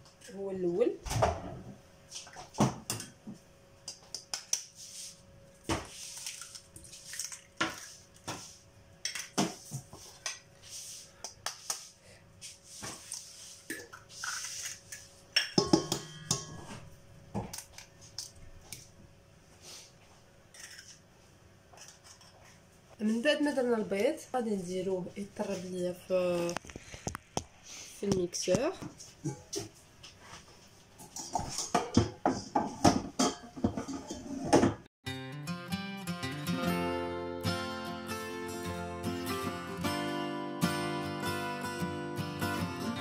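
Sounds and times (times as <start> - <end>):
eggshells tapping on metal bowl: 15.4 - 16.6.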